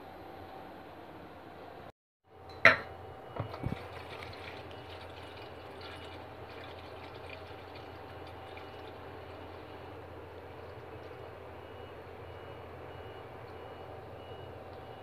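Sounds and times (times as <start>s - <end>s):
tap water filling a pot: 3.4s - 9.6s.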